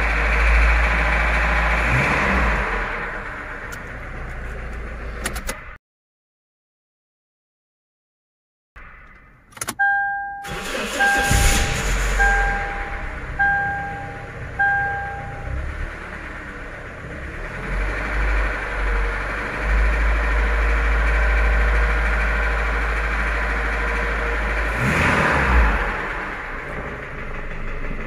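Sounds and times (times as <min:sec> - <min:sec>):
car engine knocking: 0:26.1 - 0:28.0.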